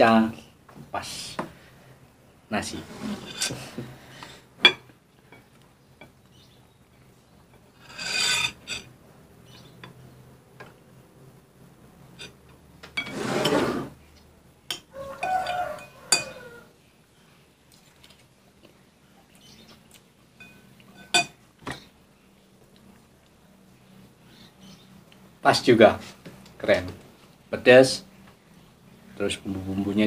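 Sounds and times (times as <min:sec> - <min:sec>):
spoon clinking on dishes: 0:14.7 - 0:16.5, 0:20.4 - 0:21.4.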